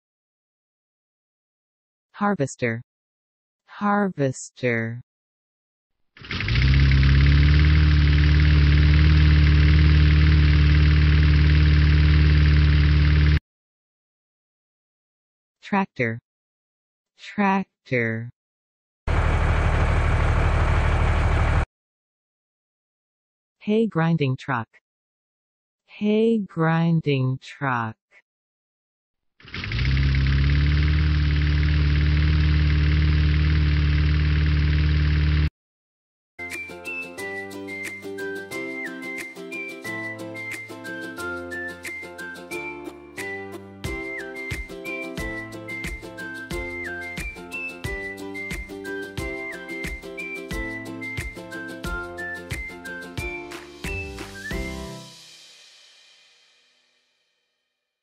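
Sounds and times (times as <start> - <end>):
diesel engine drone: 6.4 - 13.4, 19.1 - 21.6, 29.7 - 35.4.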